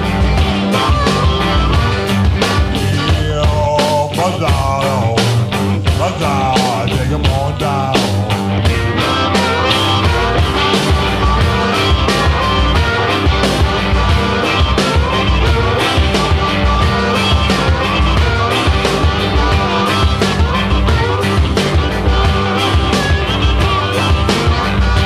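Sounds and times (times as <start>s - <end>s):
drums playing a steady beat: 0.0s - 25.0s
electric guitar: 0.0s - 25.0s.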